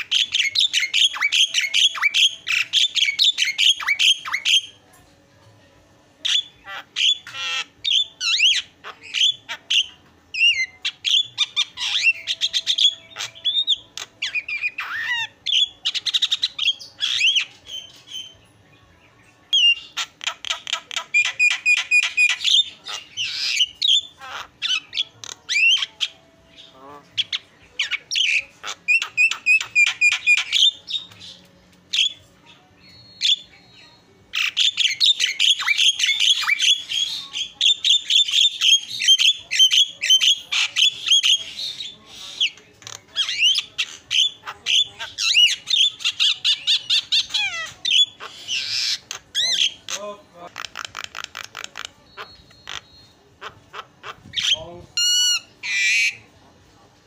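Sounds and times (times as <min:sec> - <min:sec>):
bird harsh squawks: 0:34.3 - 0:42.6, 0:43.2 - 0:56.2.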